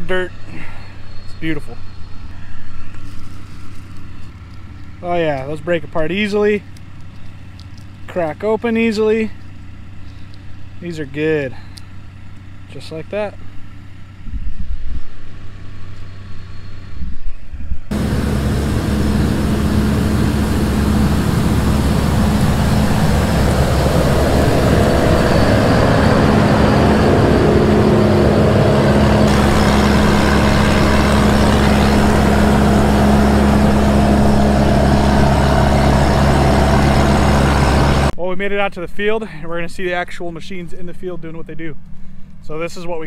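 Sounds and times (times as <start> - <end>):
engine hum: 0.0 - 38.2
blower fan air rush: 14.2 - 38.2.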